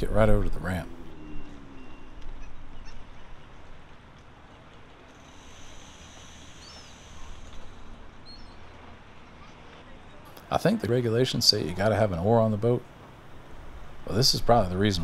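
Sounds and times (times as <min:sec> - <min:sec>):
faint bird chirps: 0:01.0 - 0:03.6, 0:04.4 - 0:10.3.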